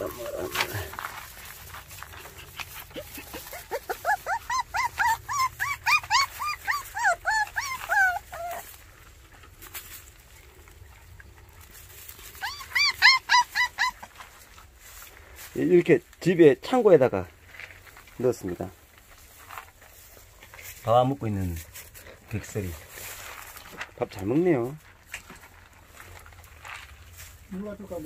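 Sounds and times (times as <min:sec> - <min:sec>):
puppies whining: 0:00.0 - 0:08.9, 0:12.2 - 0:14.5.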